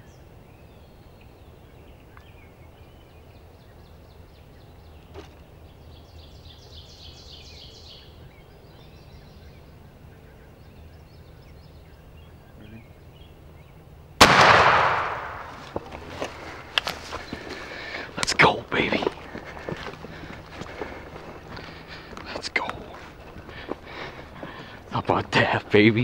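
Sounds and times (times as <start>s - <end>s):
faint bird calls chirping: 0.0s - 14.0s
shotgun blast: 14.2s - 15.8s.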